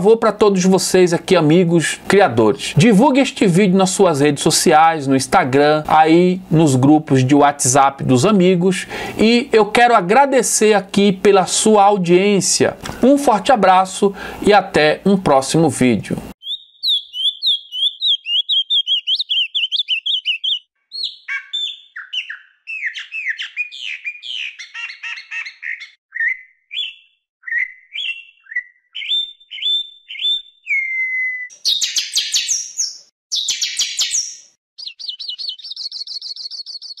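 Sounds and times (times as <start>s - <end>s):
songbird chirps and warbles: 16.4s - 37.0s.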